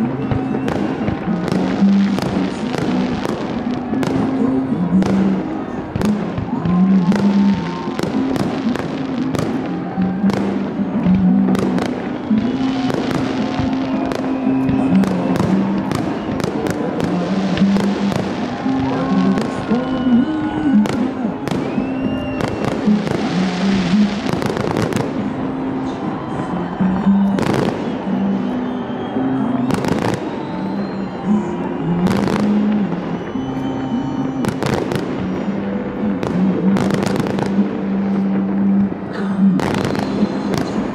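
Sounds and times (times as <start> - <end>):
fireworks whistles: 0.0 - 5.3, 6.0 - 25.3, 25.9 - 37.7, 39.6 - 40.9
fireworks bangs and crackles: 0.0 - 40.9.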